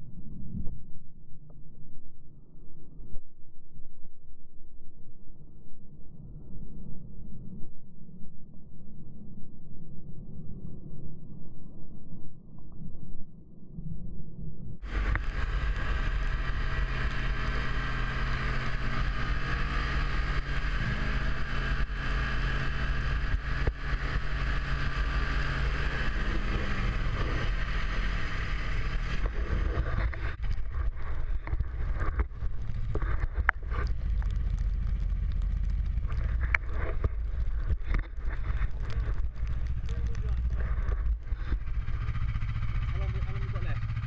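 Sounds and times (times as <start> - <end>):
wind on microphone: 14.0 - 42.8
knocks and crackles: 14.8 - 44.0
snowmobile engine running: 14.8 - 44.0.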